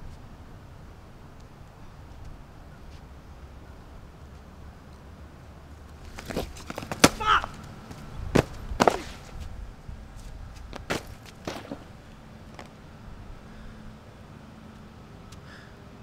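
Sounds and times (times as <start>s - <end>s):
footfalls: 6.0s - 9.4s
bag kicked on asphalt: 6.1s - 7.6s, 8.3s - 9.3s, 10.7s - 11.9s.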